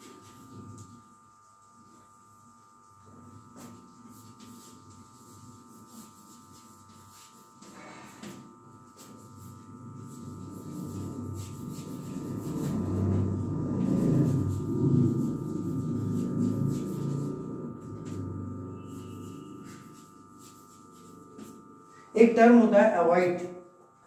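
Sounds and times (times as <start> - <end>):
low gong-like resonant drone: 12.0 - 20.0.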